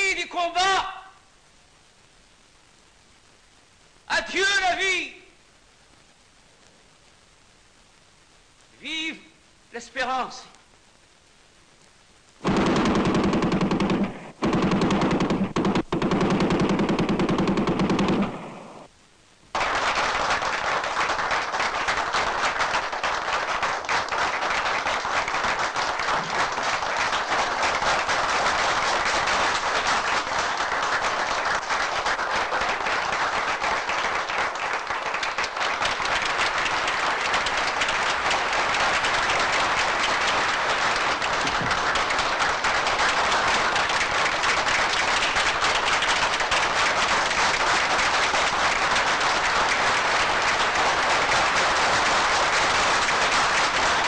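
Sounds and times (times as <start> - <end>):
machine-gun fire: 12.4 - 18.9.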